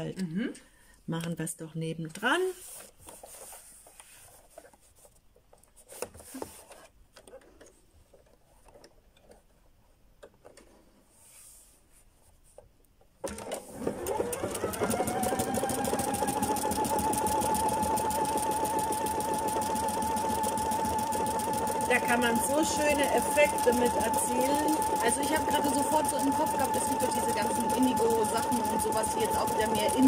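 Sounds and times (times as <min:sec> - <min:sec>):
sewing machine running: 0:13.2 - 0:30.0.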